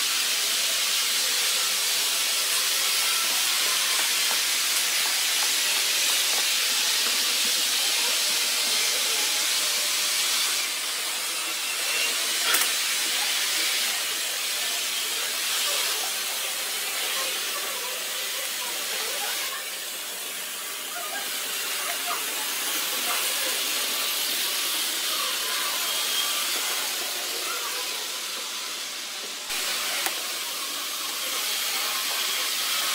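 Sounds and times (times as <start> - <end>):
model train wheels hissing on track: 0.0 - 32.9.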